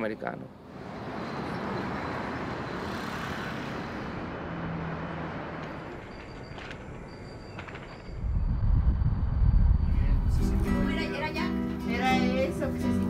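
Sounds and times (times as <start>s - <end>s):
vehicle traffic rumble: 0.0s - 13.0s
low hum: 8.2s - 10.8s.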